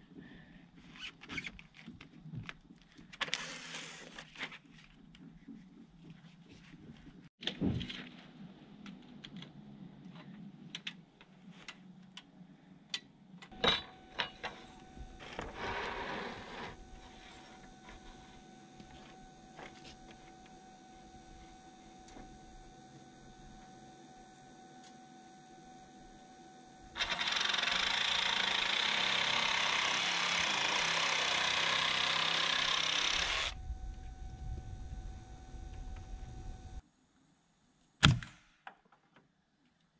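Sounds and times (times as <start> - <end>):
jigsaw cutting board: 27.0 - 33.6.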